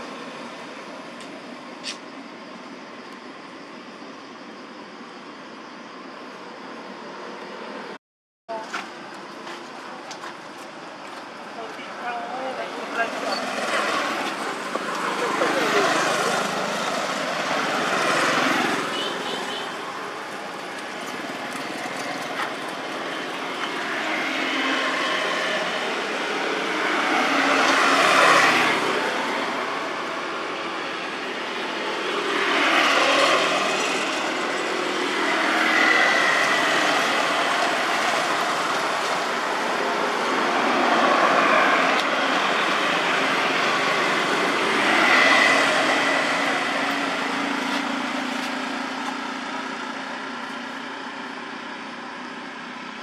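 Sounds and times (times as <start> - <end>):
road vehicles passing: 0.0 - 53.0.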